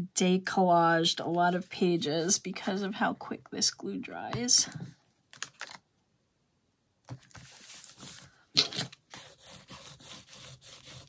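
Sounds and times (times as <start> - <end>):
paper crinkle: 7.1 - 11.0
scraper rubbing paper: 9.1 - 11.0.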